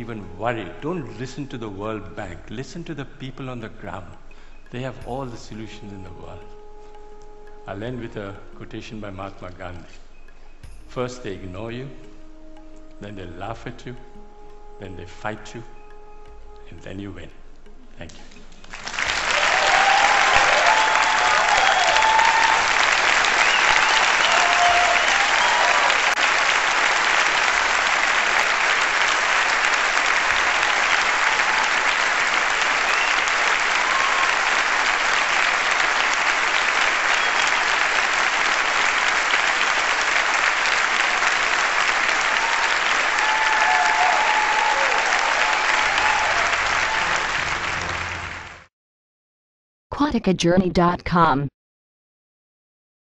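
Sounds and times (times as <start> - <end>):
large audience clapping: 18.0 - 48.7
voices cheering: 19.2 - 27.3, 29.4 - 35.7, 41.9 - 48.5.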